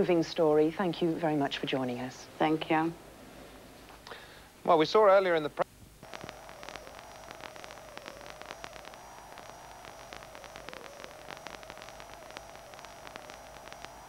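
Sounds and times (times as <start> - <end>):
faint high whine: 0.0 - 14.0
videotape hiss: 0.0 - 14.0
crackling clicks: 5.6 - 14.0.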